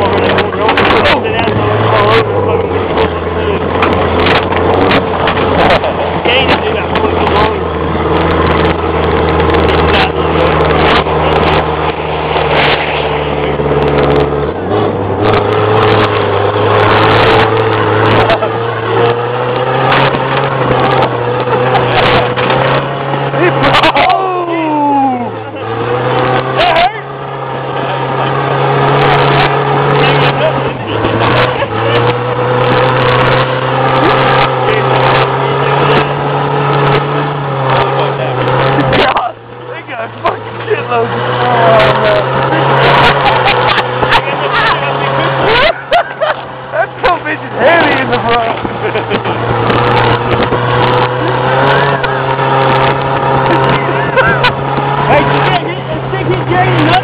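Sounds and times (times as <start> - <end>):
heavy rushing noise: 0.0 - 57.0
truck engine running: 0.0 - 57.0.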